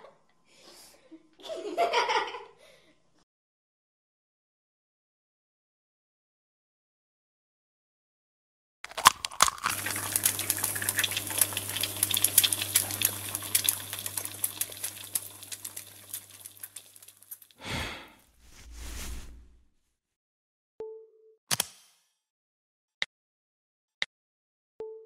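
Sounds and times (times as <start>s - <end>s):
food sizzling in frying pan: 9.6s - 17.7s
brief soft noise: 18.4s - 19.7s.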